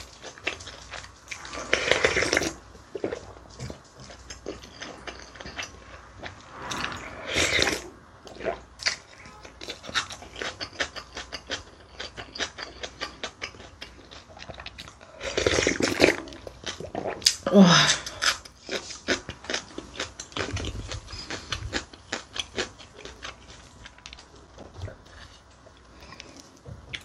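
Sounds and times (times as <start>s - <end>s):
close chewing with wet mouth clicks: 8.3s - 17.5s, 18.1s - 27.0s.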